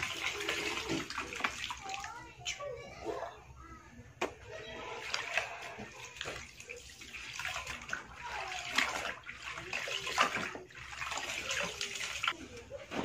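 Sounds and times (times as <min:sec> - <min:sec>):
water pouring into basin: 0:00.0 - 0:02.2, 0:04.8 - 0:12.4
water sloshing and splashing: 0:00.0 - 0:03.3, 0:04.4 - 0:13.0.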